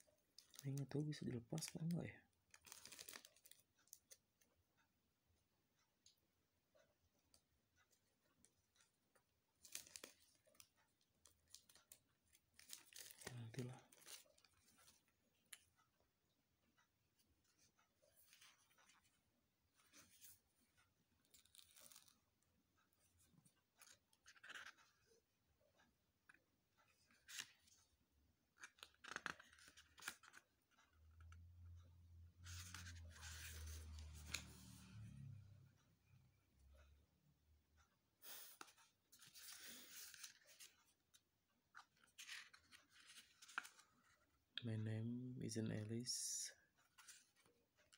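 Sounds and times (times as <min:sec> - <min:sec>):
paper pages rustling: 0:02.5 - 0:04.2, 0:09.6 - 0:15.6, 0:17.5 - 0:22.3, 0:23.0 - 0:25.3, 0:26.3 - 0:27.9, 0:28.5 - 0:30.9, 0:32.4 - 0:34.8, 0:38.3 - 0:44.3.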